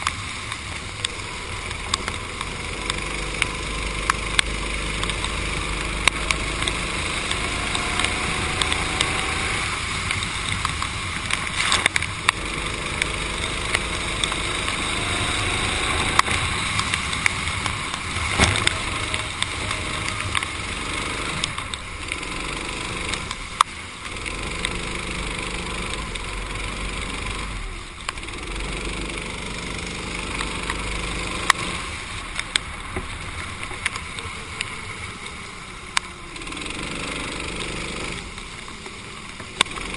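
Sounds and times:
sharp clicks: 0:00.0 - 0:26.3
racing kart engine: 0:00.0 - 0:39.9.

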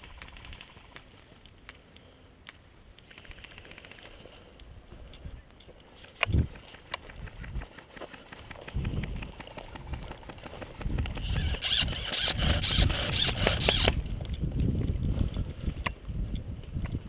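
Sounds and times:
sharp clicks: 0:00.0 - 0:14.4
wind rumbling on microphone: 0:06.2 - 0:17.0.

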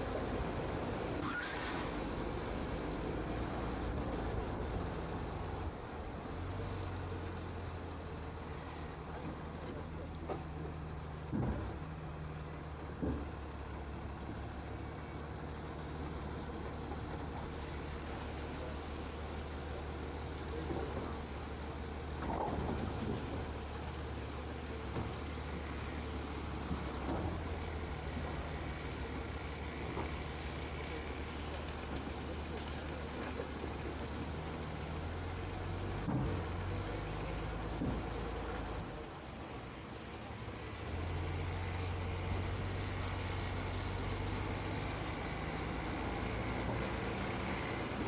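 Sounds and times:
garbage truck running: 0:00.0 - 0:48.0.

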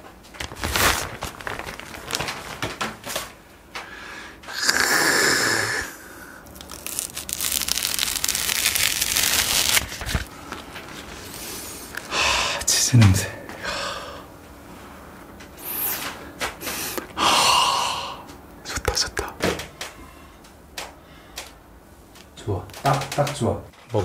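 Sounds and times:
wrapping crinkling and rustling: 0:00.0 - 0:03.4, 0:06.4 - 0:12.1.

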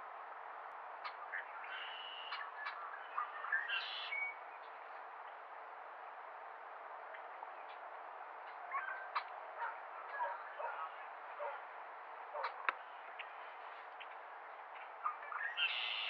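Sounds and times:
bird chirps: 0:01.0 - 0:04.8, 0:14.0 - 0:16.0.

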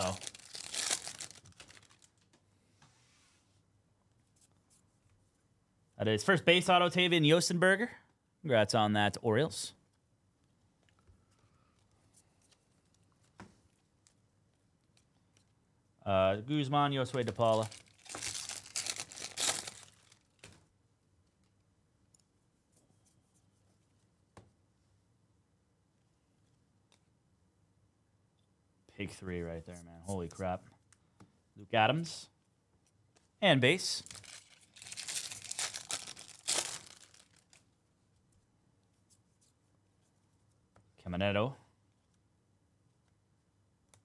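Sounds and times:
plastic wrapper tearing and crinkling: 0:00.0 - 0:02.3, 0:17.2 - 0:20.5, 0:33.9 - 0:37.6.

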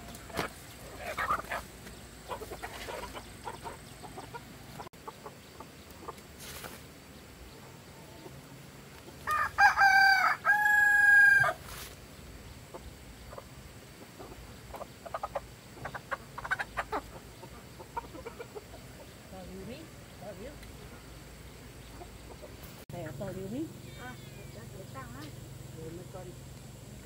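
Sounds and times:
chickens clucking: 0:00.0 - 0:25.4
rooster crowing: 0:09.2 - 0:11.6.

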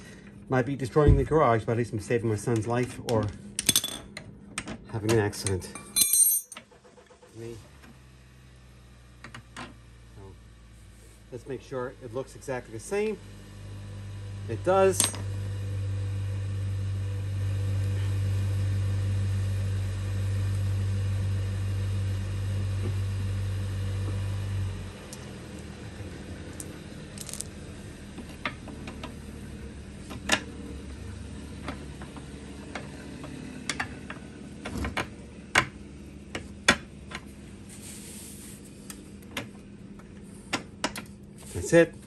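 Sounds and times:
low machine hum: 0:00.0 - 0:42.0
metallic clinks of hand tools: 0:05.8 - 0:06.6.

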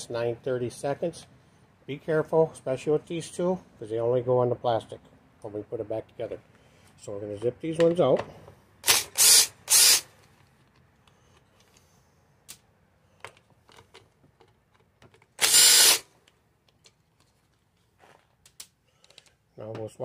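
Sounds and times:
impact driver burst: 0:08.8 - 0:10.1, 0:15.4 - 0:16.1.

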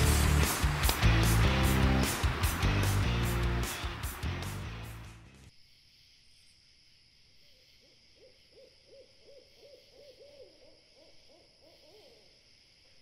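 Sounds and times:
owl hooting: 0:07.4 - 0:12.3.

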